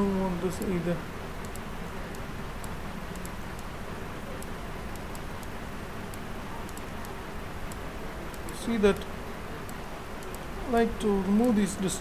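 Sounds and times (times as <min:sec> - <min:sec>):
microphone hiss: 0:00.0 - 0:12.0
computer mouse clicks: 0:01.4 - 0:03.7, 0:04.3 - 0:10.4.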